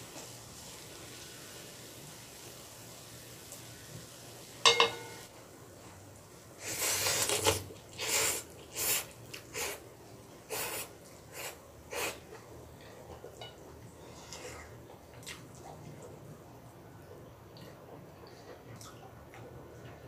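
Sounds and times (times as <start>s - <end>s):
utensil clinking on dish: 4.6s - 5.3s
noodles being slurped: 6.6s - 9.8s.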